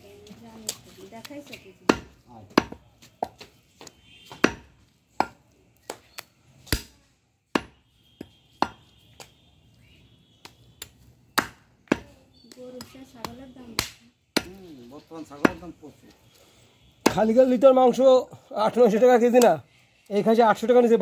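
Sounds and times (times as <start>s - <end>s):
cleaver chopping meat on wood block: 1.8s - 3.4s, 4.3s - 6.0s, 6.7s - 6.9s, 7.5s - 8.9s, 10.4s - 12.1s, 12.8s - 14.6s, 15.4s - 15.7s, 17.0s - 17.3s.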